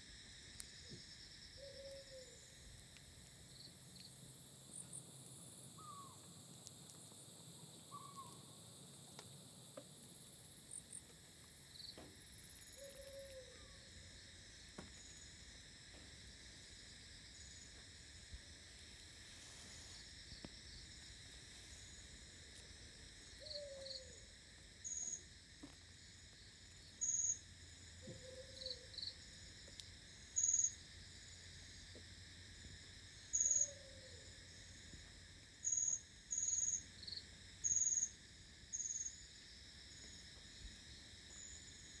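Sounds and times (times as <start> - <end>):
high-pitched insect chirps: 0.0 - 9.8, 10.7 - 15.9, 16.5 - 34.8, 35.5 - 42.0
insect chorus hum: 0.0 - 42.0.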